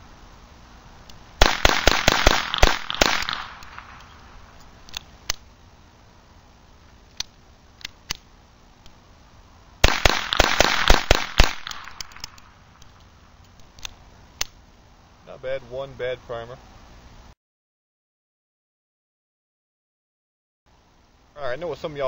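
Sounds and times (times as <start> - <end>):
pistol firing sharp shots: 1.4 - 4.1, 9.8 - 12.3.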